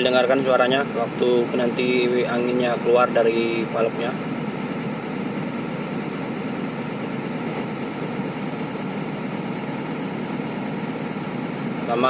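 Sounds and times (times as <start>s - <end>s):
air compressor running: 0.0s - 12.0s
diesel truck engine idling: 0.0s - 12.0s.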